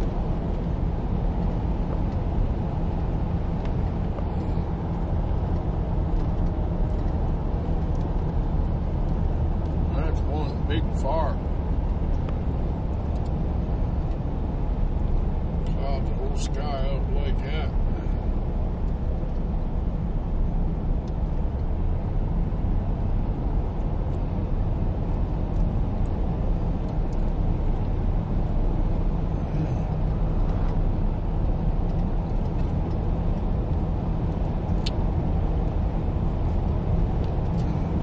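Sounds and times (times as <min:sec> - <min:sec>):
car engine and tyres rumbling: 0:00.0 - 0:38.0.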